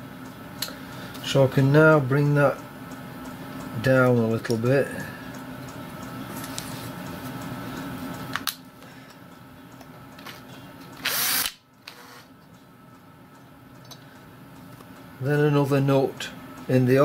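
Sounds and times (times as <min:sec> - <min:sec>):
cordless drill running: 0:11.0 - 0:12.3
drill click: 0:11.0 - 0:12.3.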